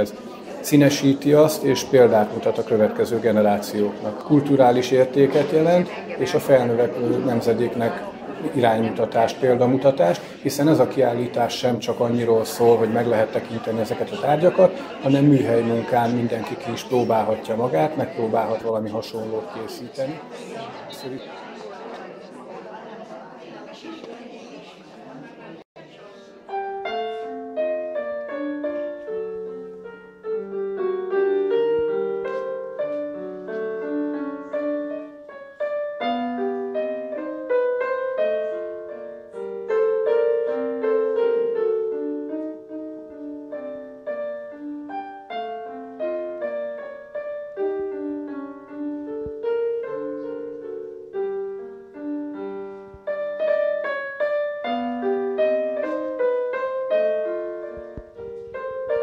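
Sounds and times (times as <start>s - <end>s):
solo piano piece: 26.0s - 59.0s.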